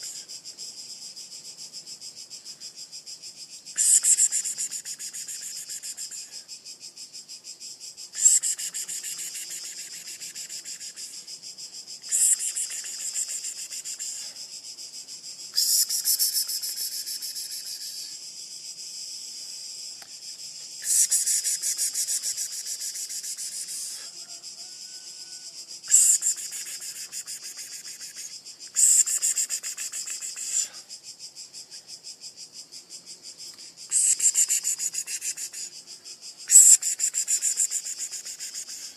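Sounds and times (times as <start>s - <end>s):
insects buzzing: 0.0s - 38.9s.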